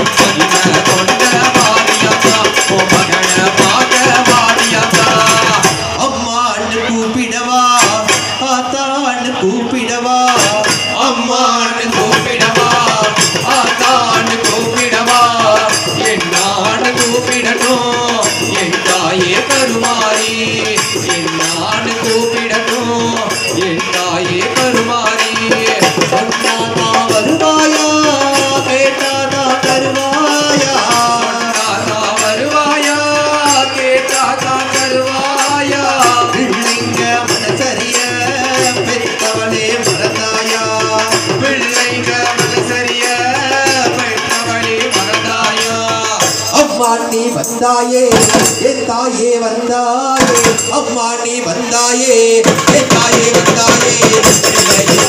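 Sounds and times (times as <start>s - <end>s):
men singing through microphones: 0.0s - 55.0s
hand drumming: 52.4s - 55.0s.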